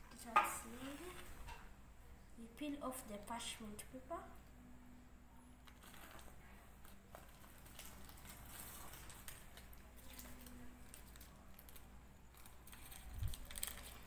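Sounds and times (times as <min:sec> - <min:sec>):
light crackles: 0:05.6 - 0:14.0
parchment paper rustling and crinkling: 0:05.7 - 0:14.0.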